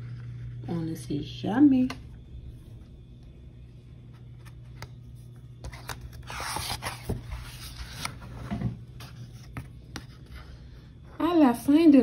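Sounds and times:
paper page turning: 0:04.1 - 0:10.2.

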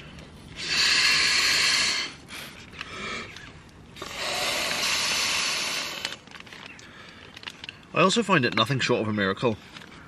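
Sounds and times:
breath hissing into mat valve: 0:00.6 - 0:03.3, 0:04.0 - 0:06.3.

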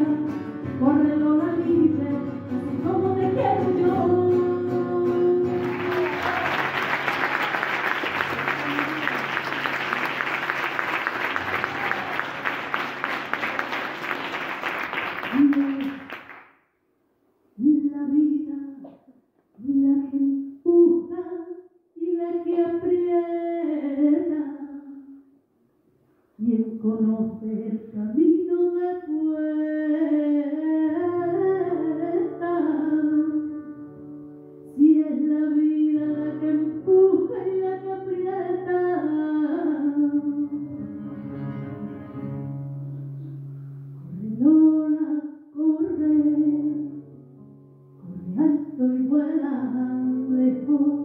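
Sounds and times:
woman singing into a microphone: 0:00.0 - 0:06.5, 0:15.3 - 0:16.1, 0:17.6 - 0:19.0, 0:19.6 - 0:25.0, 0:26.4 - 0:33.8, 0:34.7 - 0:40.7, 0:44.1 - 0:47.1, 0:48.0 - 0:51.0.

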